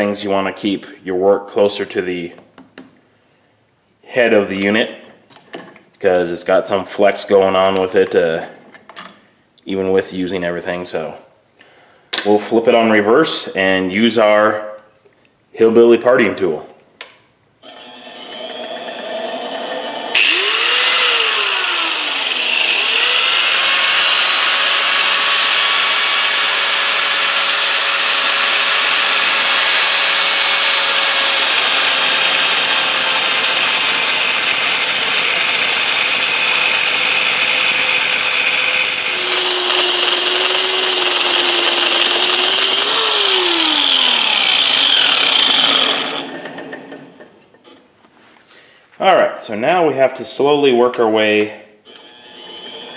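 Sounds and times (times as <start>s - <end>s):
angle grinder cutting metal: 17.8s - 46.8s.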